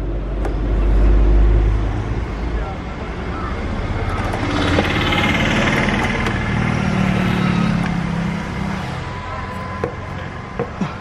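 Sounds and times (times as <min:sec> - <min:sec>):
vehicle engine passing by: 0:03.4 - 0:09.4.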